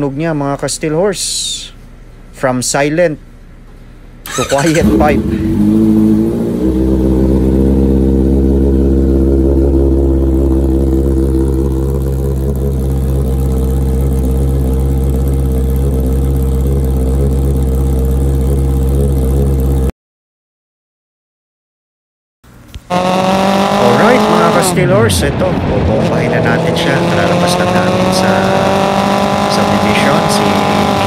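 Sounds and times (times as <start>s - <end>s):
motorcycle engine idling loudly: 4.3s - 19.9s.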